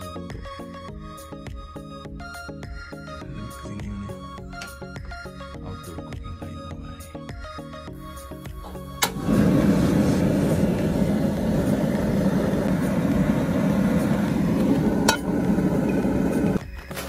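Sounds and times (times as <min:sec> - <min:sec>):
camp stove burner roaring: 0:08.3 - 0:16.6.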